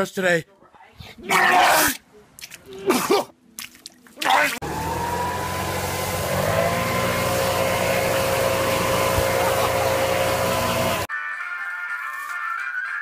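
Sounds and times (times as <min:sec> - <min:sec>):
leaf blower running: 0:04.6 - 0:11.1.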